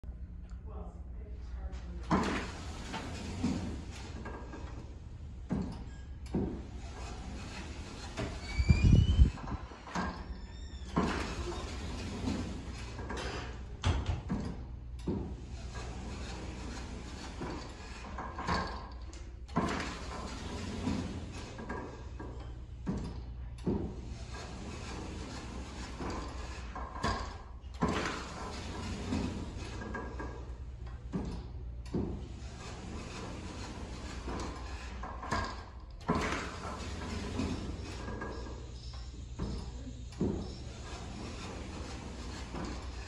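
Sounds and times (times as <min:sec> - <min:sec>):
sliding door humming: 0:02.0 - 0:43.0.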